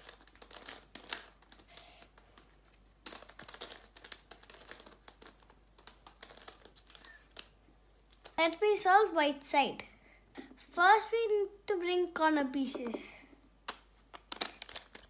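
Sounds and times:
plastic puzzle clicks: 0:13.7 - 0:15.0.

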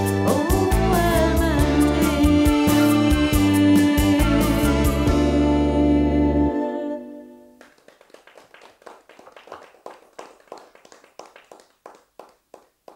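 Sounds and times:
sparse audience clapping: 0:07.6 - 0:12.9.

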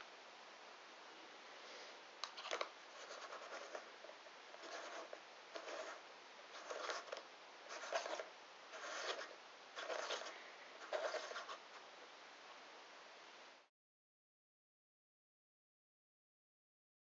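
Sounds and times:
rubber rubbing and scraping: 0:06.6 - 0:11.8.

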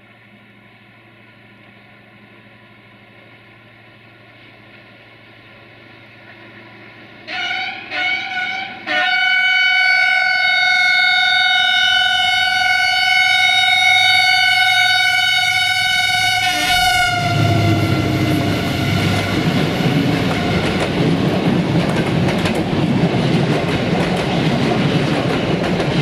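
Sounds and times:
diesel locomotive engine rumble: 0:00.0 - 0:26.0
locomotive horn blasts: 0:07.3 - 0:21.1.

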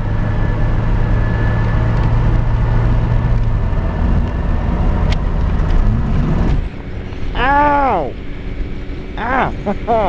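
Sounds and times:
car engine and road noise: 0:00.0 - 0:10.0.

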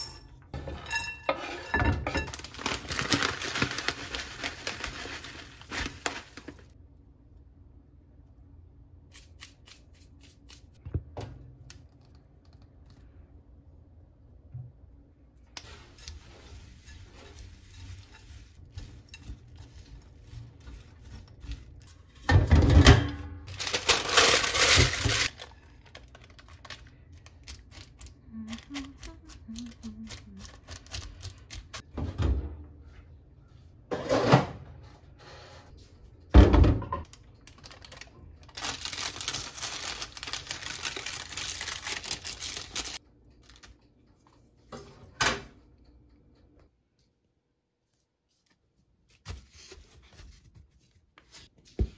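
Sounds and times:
parchment paper rustling: 0:02.3 - 0:06.8, 0:15.6 - 0:22.3, 0:23.4 - 0:31.8, 0:37.4 - 0:43.7, 0:47.9 - 0:51.9.

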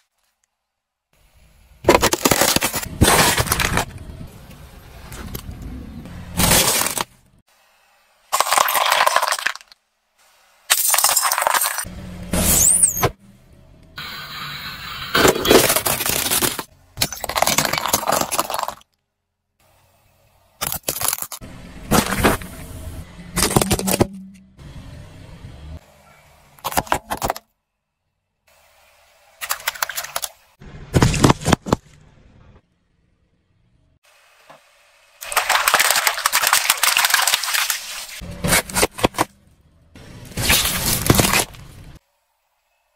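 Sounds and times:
tyre crushing plastic: 0:01.8 - 0:04.0, 0:06.4 - 0:07.2, 0:15.5 - 0:18.8, 0:20.6 - 0:22.5, 0:40.3 - 0:41.8
low steady hum: 0:21.4 - 0:26.6.

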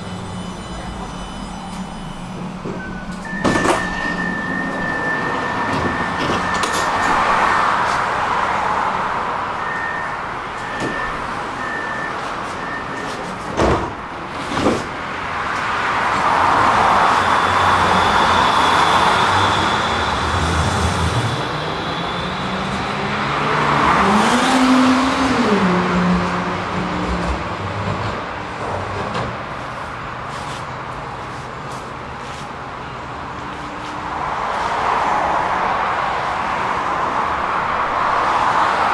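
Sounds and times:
door-warning beeps: 0:00.0 - 0:07.5, 0:09.6 - 0:13.2
road traffic: 0:00.0 - 0:38.9
tram rolling on rails: 0:00.0 - 0:38.9
tram doors knocking shut: 0:01.7 - 0:07.4, 0:13.1 - 0:15.0.

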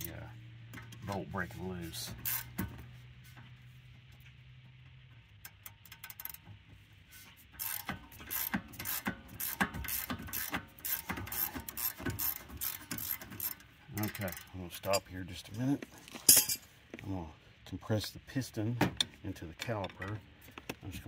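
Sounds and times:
ratchet wrench clicking: 0:02.2 - 0:02.6, 0:05.4 - 0:06.4, 0:07.6 - 0:15.0.

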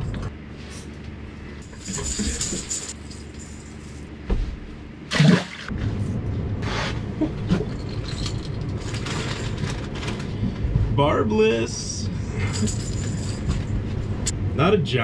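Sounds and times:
steady low hum: 0:00.0 - 0:15.0
water splashing: 0:05.1 - 0:05.7.

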